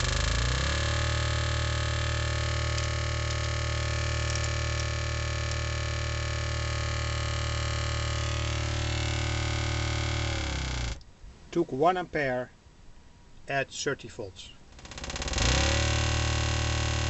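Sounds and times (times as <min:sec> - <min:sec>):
pulsing electronic buzz: 0:00.0 - 0:11.0, 0:14.7 - 0:17.0.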